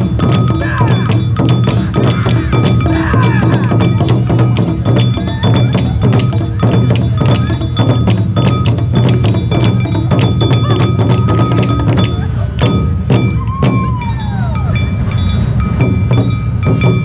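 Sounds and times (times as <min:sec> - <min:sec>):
metal gongs clanging: 0:00.0 - 0:17.0
taiko drums: 0:00.0 - 0:17.0.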